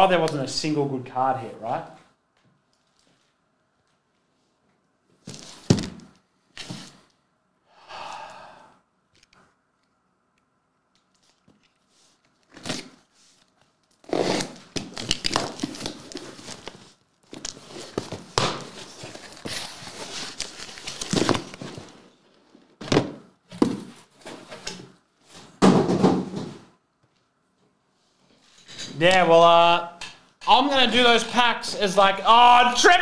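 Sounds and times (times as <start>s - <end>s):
tape and cardboard tearing: 12.4s - 13.1s, 13.9s - 16.8s.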